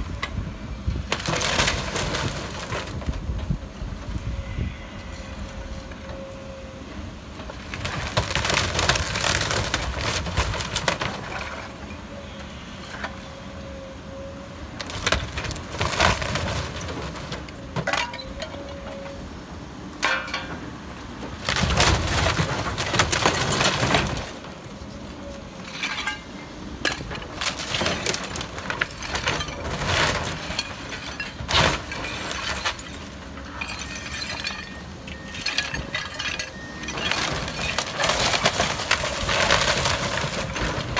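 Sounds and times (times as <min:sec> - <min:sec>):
excavator rumble: 0:00.0 - 0:40.9
debris crashing and cracking: 0:01.0 - 0:03.6, 0:07.3 - 0:12.0, 0:14.8 - 0:19.1, 0:20.0 - 0:40.9.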